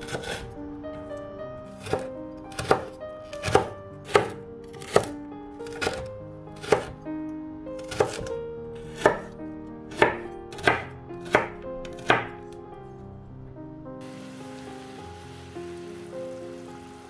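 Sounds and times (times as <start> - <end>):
knife chopping on wooden board: 0.1 - 0.4, 1.8 - 7.0, 7.8 - 8.3, 8.9 - 9.3, 9.9 - 12.4.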